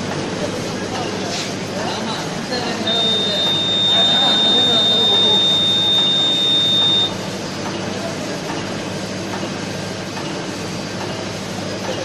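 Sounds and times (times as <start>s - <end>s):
machine running: 2.1s - 9.6s
low electrical hum: 2.7s - 7.3s.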